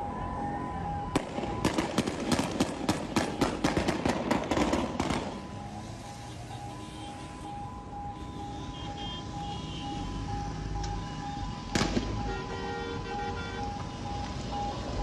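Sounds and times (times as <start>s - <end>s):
rapid gunshots: 1.6s - 5.3s.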